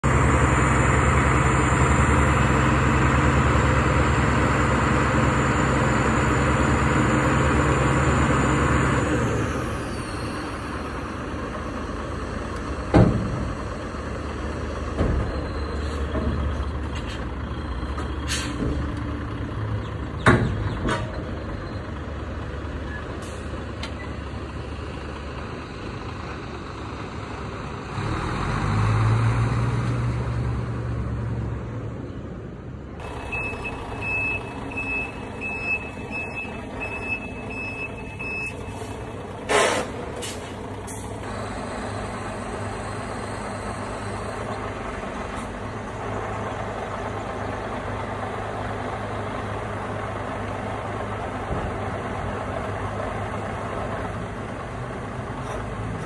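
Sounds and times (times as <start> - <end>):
diesel truck engine revving: 0.0 - 56.0.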